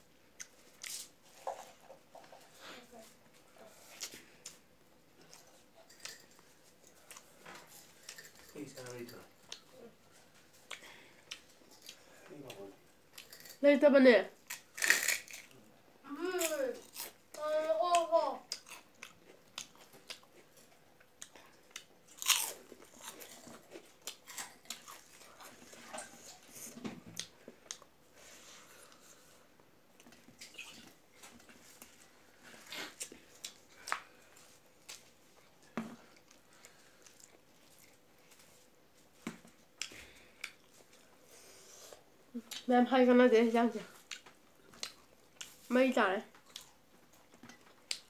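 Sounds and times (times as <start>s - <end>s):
chewing crackle: 18.5s - 26.4s.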